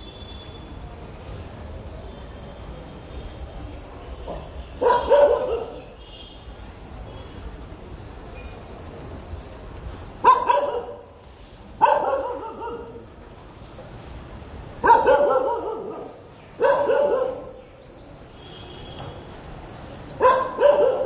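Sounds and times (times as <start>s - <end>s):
dog barking: 4.3s - 6.0s, 10.2s - 11.2s, 11.8s - 13.0s, 14.8s - 17.6s, 20.2s - 21.0s.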